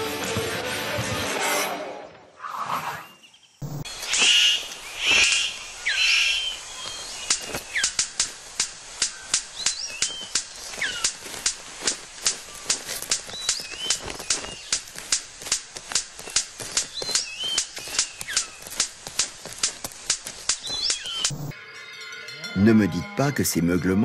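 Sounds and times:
bird harsh call bursts: 0:02.9 - 0:08.2, 0:08.9 - 0:11.2, 0:20.5 - 0:21.3
bird sharp clicks: 0:03.6 - 0:21.3.

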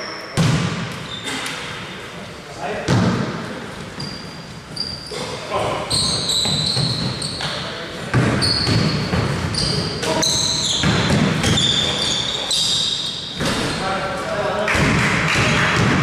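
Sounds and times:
voices echoing in hall: 0:00.0 - 0:16.0
sneakers squeaking on court: 0:00.2 - 0:01.7, 0:03.8 - 0:13.8
basketball bouncing: 0:08.1 - 0:12.0, 0:14.7 - 0:16.0.

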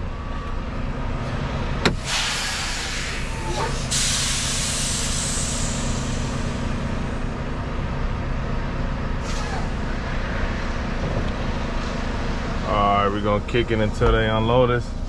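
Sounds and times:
diesel truck engine running: 0:00.0 - 0:15.0
air brakes hissing: 0:01.9 - 0:07.1, 0:09.2 - 0:10.0.

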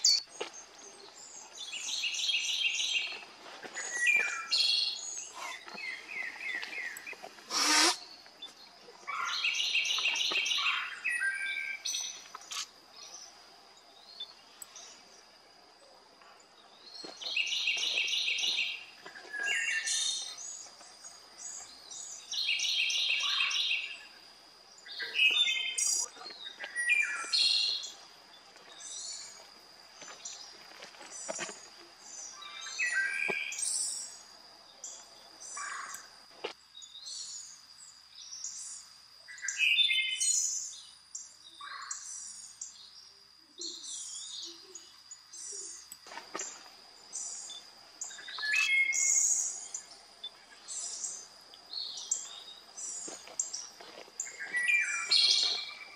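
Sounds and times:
birds chirping and calling: 0:00.0 - 0:13.4, 0:16.9 - 0:24.1, 0:24.8 - 0:28.0, 0:51.8 - 0:55.9
bird trilling: 0:07.5 - 0:08.0.

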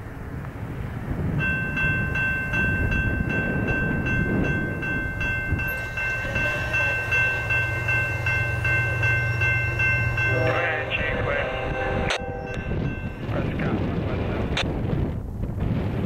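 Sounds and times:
locomotive engine hum: 0:00.0 - 0:15.6
train rumble: 0:00.0 - 0:16.0
crossing bell ringing: 0:01.4 - 0:13.8.

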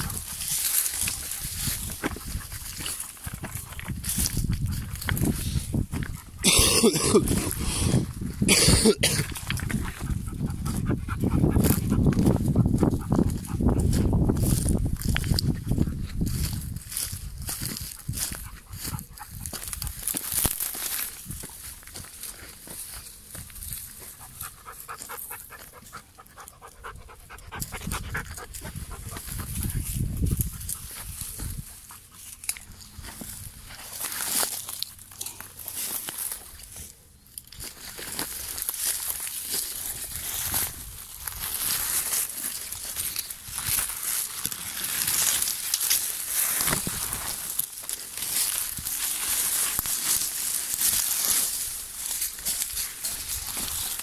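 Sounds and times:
walking through dry undergrowth: 0:00.0 - 0:54.0
dog panting: 0:10.0 - 0:14.1, 0:24.2 - 0:29.5.

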